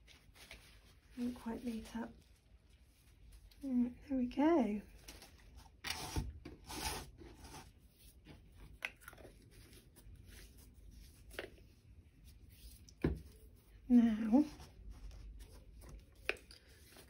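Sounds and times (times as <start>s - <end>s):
canvas board scraping on cutting mat: 5.9s - 7.8s.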